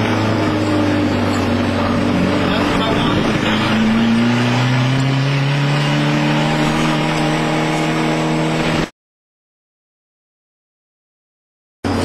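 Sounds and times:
turbocharged engine pulling hard: 0.0 - 8.9.

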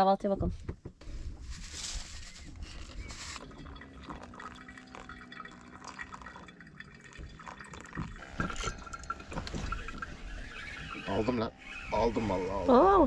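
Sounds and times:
coffee grounds shaken into filter: 1.4 - 5.0
water trickling onto coffee: 2.2 - 11.4
water dripping: 3.4 - 11.0.

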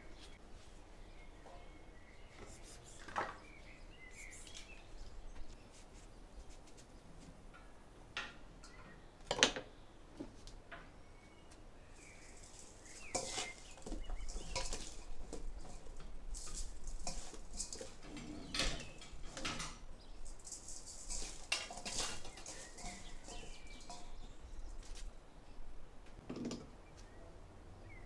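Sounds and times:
eggplant rustling in a metal bowl: 0.0 - 6.9, 11.8 - 25.2.

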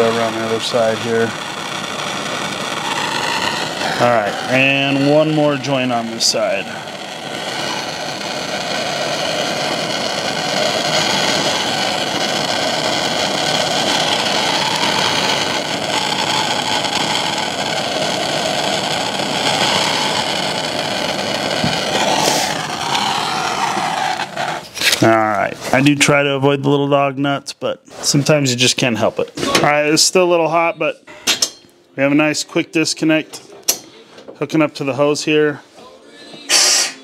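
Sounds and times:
gas torch flame hissing: 0.0 - 26.3, 36.5 - 37.0.

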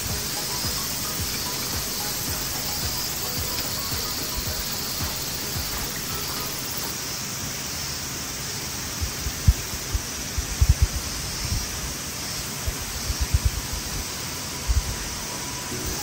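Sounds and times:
stream flowing: 0.0 - 16.0
dull low thumps: 9.4 - 11.0.

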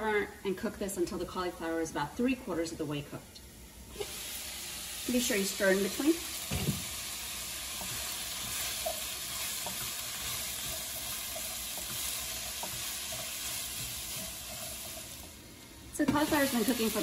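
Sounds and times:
cauliflower sizzling in pan: 3.8 - 17.0
spatula stirring and scraping: 7.6 - 15.3.

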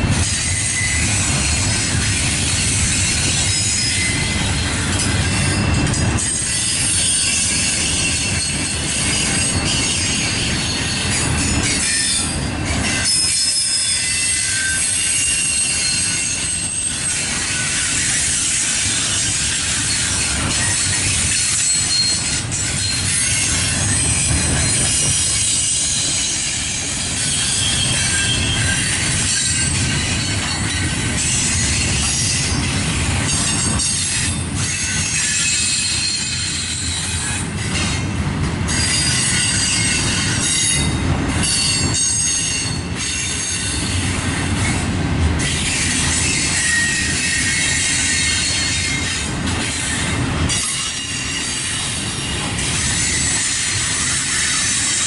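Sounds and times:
steel wheels rumbling on rail: 0.0 - 55.0
high-pitched wheel squeal: 0.3 - 32.6, 33.3 - 38.0, 38.7 - 44.0, 45.5 - 55.0.

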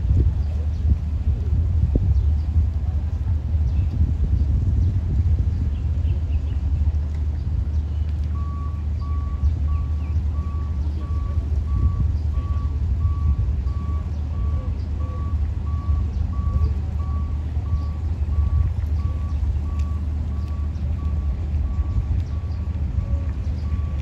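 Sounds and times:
low rumble: 0.0 - 24.0
reversing alarm beeping: 8.4 - 24.0.

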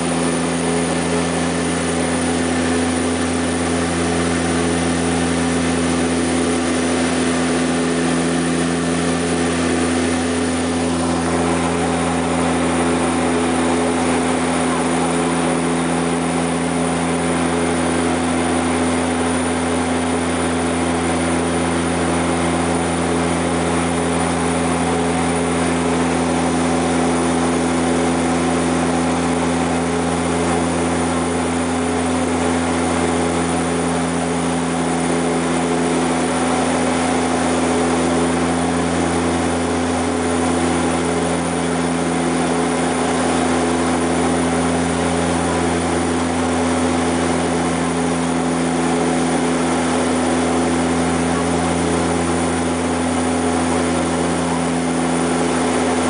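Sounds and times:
propeller plane drone in cabin: 0.0 - 56.0.

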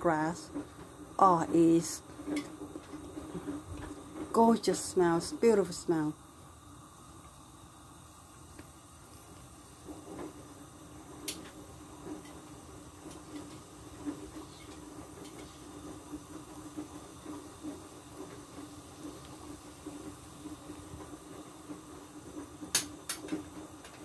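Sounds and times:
soup boiling and bubbling: 0.0 - 24.0.

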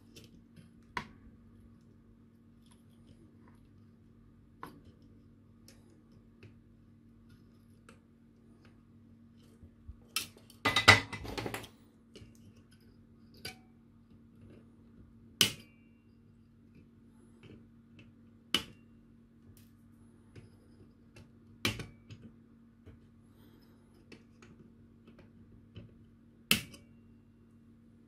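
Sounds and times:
faint steady hum: 0.0 - 28.0
clattering handling noise: 10.6 - 11.8.

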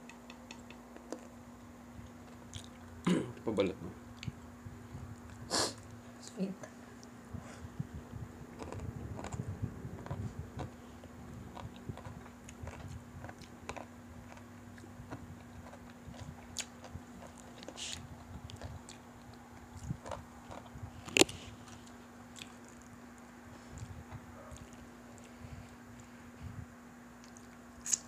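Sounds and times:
steady low hum: 0.0 - 28.0
chewing crispy chicken: 2.0 - 2.9, 8.5 - 26.1, 27.2 - 28.0.

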